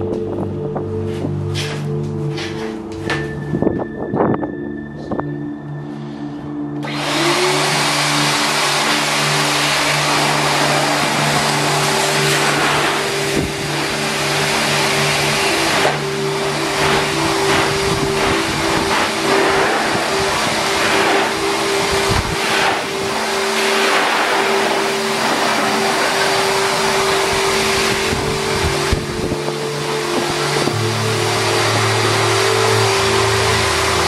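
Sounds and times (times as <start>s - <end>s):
wet vacuum cleaner running: 6.8s - 34.0s.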